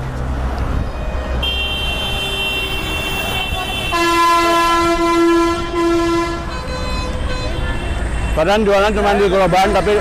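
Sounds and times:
traffic rumble: 0.0s - 10.0s
high-pitched vehicle horn: 0.9s - 8.5s
loud low vehicle horn: 0.9s - 9.4s.

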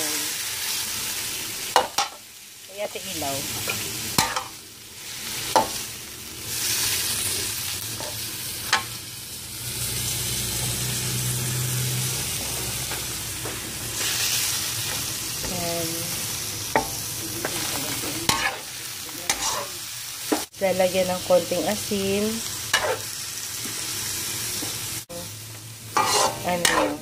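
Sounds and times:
chicken sizzling in a wok: 0.0s - 27.0s
metal spoon scraping a pan: 3.5s - 4.6s, 16.7s - 20.4s, 22.7s - 23.1s, 25.9s - 27.0s.

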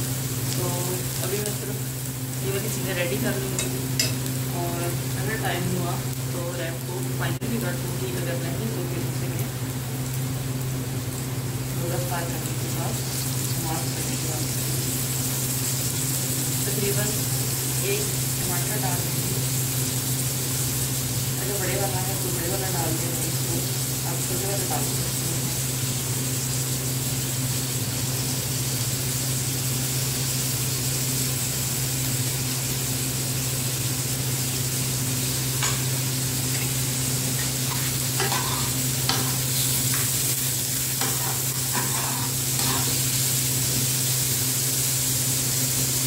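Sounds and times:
vegetables sizzling in a frying pan: 0.0s - 46.0s
spatula scraping a pan: 37.4s - 40.2s, 40.8s - 43.2s.

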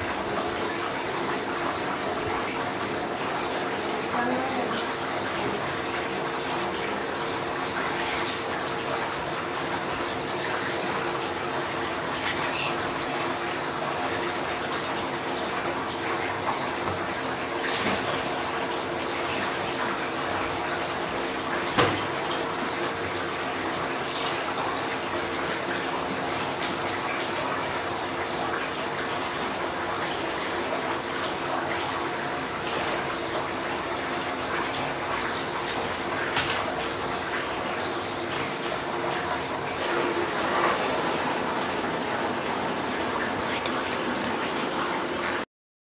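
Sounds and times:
fountain water trickling and splashing: 0.0s - 45.4s.

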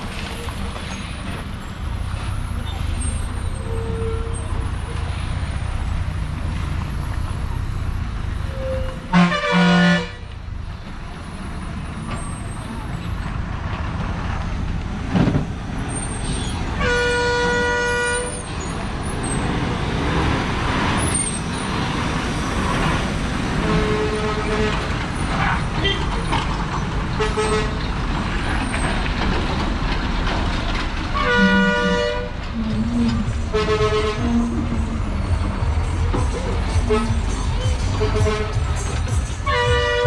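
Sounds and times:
lorry diesel engines rumbling: 0.0s - 40.0s
truck horns: 3.5s - 4.7s, 8.4s - 10.3s, 16.7s - 18.5s, 23.5s - 24.9s, 27.2s - 27.9s, 31.1s - 35.0s, 36.4s - 40.0s.

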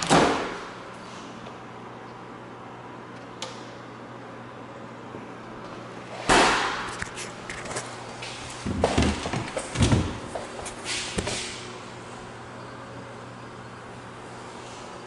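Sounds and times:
refrigerator door slamming: 0.0s - 0.7s, 8.6s - 10.3s.

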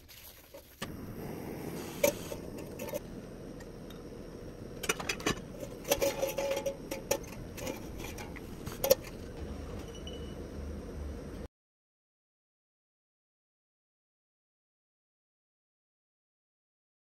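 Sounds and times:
oil crackling: 0.0s - 9.4s
gas stove burner running: 0.8s - 11.5s.

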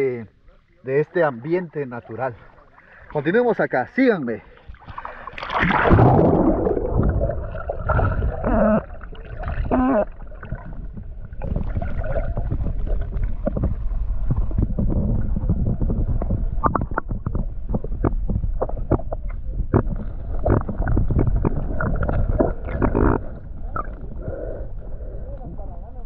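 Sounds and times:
muffled water gurgling and sloshing: 0.0s - 26.0s
low rumble: 5.6s - 26.0s.

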